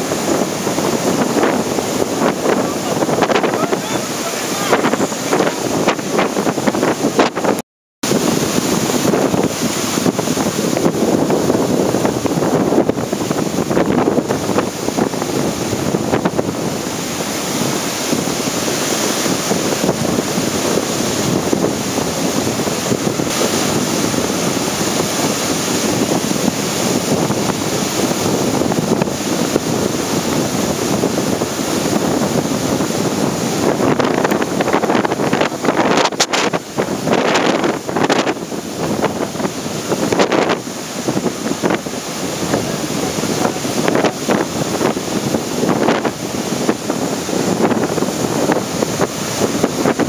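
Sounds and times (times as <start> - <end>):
surf breaking on beach: 0.0 - 50.0
wind buffeting microphone: 0.0 - 50.0.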